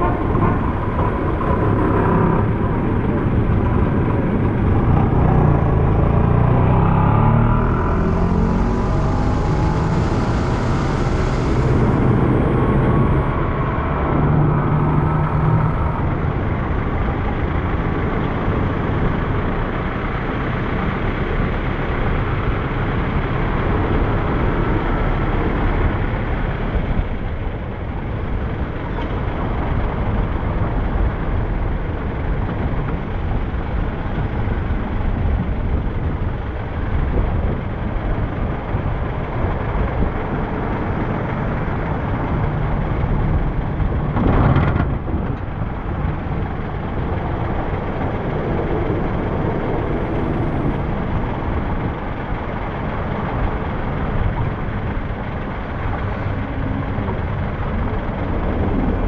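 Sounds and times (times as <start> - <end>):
motor scooters passing: 0.0 - 18.4
low engine drone: 0.0 - 59.0
road noise from moving vehicle: 0.0 - 59.0.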